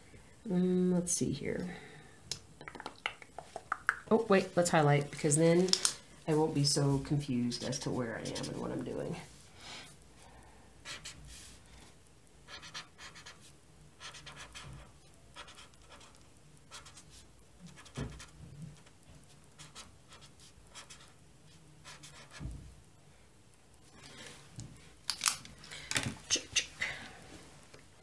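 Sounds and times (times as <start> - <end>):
scratching and rustling of needlework: 3.4 - 10.2.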